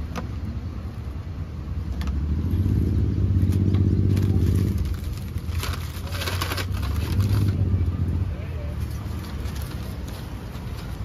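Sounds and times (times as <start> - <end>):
vehicle engine passing by: 1.7 - 10.1.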